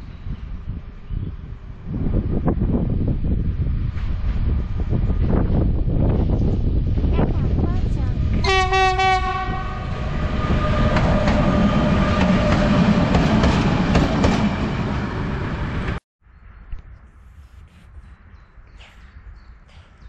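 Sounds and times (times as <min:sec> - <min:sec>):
locomotive horn: 0:08.4 - 0:12.9
train wheels clacking on rails: 0:10.4 - 0:15.1
faint outdoor background: 0:10.8 - 0:20.0.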